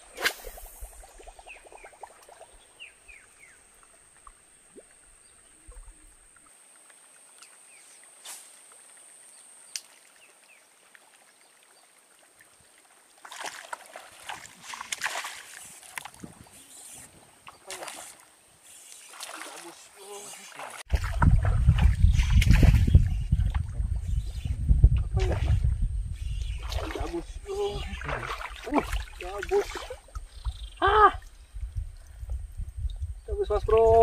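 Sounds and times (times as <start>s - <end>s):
scuffling and splashing: 13.2s - 16.3s, 19.0s - 23.7s, 26.6s - 30.1s.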